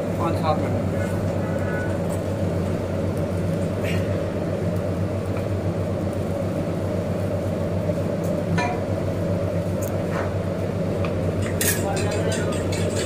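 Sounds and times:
gas stove flame hum: 0.0 - 13.0
metal ladle clinking on pot: 11.4 - 13.0.

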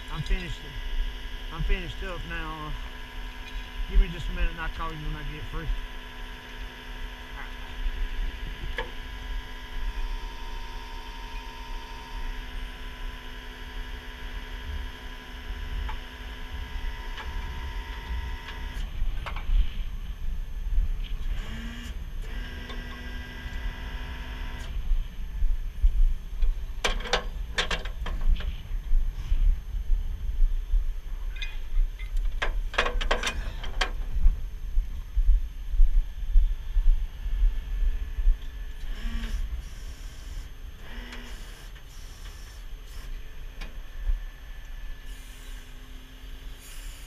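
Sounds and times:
hydraulic winch whine: 0.0 - 19.8, 21.1 - 24.8, 38.8 - 47.0.

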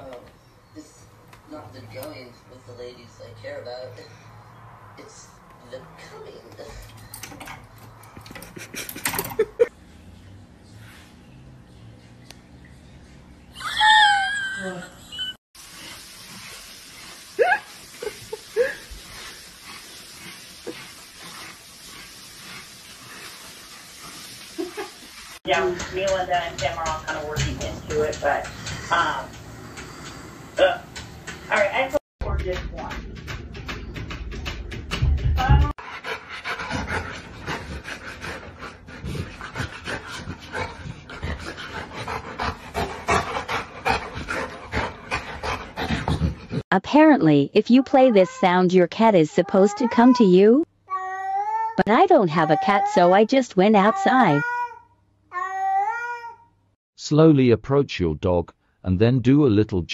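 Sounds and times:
dog panting: 18.9 - 30.0, 35.8 - 46.6.

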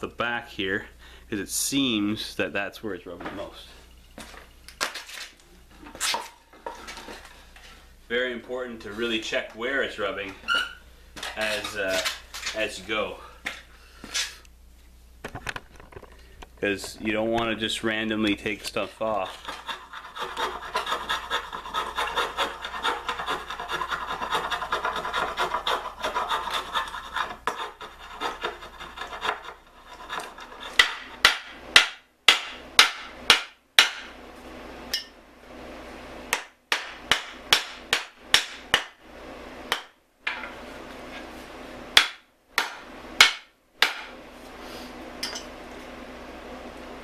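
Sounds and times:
spokeshave shaving wood: 18.5 - 31.2.

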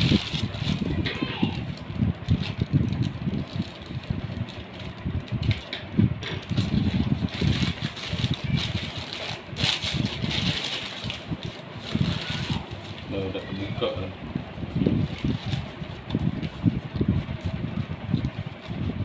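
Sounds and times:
plastic bag crinkling: 0.0 - 5.7, 6.4 - 13.9, 14.7 - 16.6
dull low thumps: 14.1 - 19.0.

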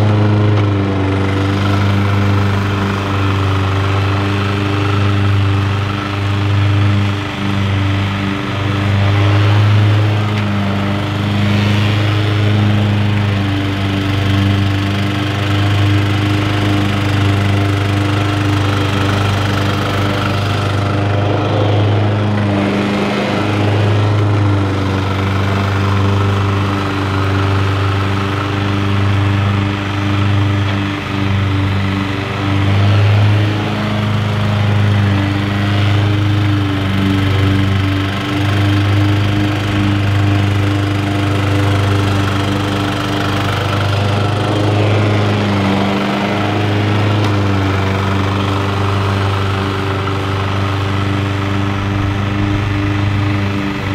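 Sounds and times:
lawn mower engine running: 0.0 - 53.9.

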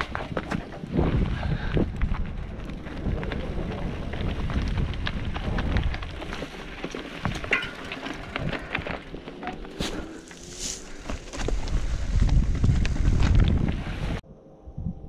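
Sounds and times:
bike tyres crunching on gravel: 0.0 - 14.2.

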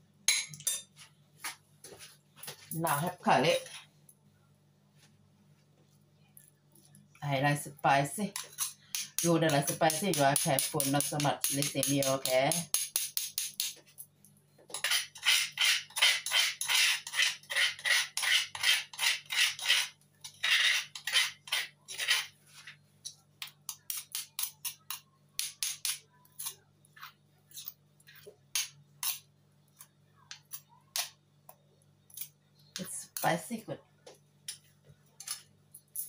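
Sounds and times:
metal spoon scraping stone pestle: 8.3 - 13.8, 14.7 - 22.4, 23.4 - 27.8.

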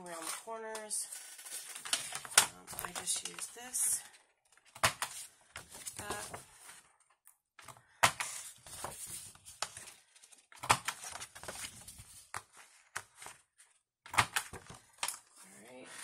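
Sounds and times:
paper sliding and rustling: 1.1 - 3.4, 8.2 - 13.4.

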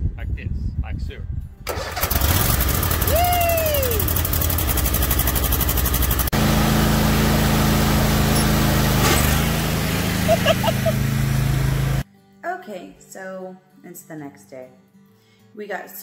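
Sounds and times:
lawn mower engine running: 1.7 - 12.0
call rising and falling: 3.0 - 4.2, 6.7 - 12.0.

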